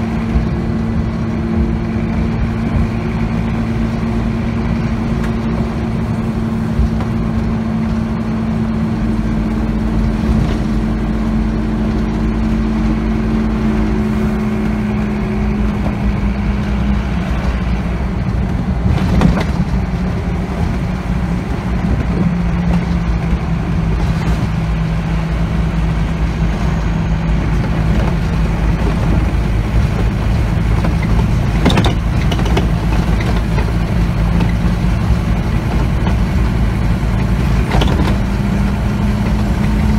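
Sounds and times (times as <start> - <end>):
diesel bus engine hum: 0.0 - 39.9
road and tyre noise: 0.0 - 39.9
bus jolting knocks: 18.7 - 20.8, 27.4 - 39.9.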